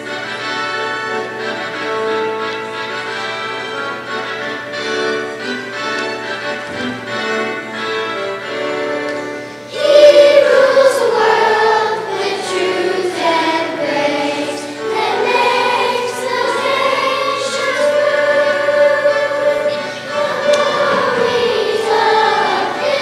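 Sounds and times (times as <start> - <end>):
musical accompaniment: 0.0 - 23.0
children's choir singing: 6.6 - 23.0.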